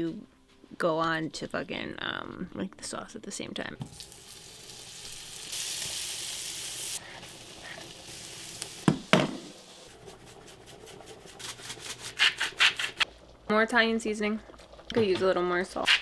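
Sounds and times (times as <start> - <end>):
butter and garlic sizzling in pan: 3.8 - 13.0.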